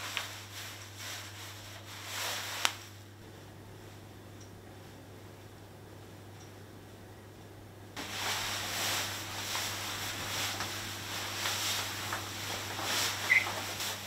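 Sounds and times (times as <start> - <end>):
faint low room hum: 0.0 - 14.0
cloth wiping a mirror: 8.0 - 14.0.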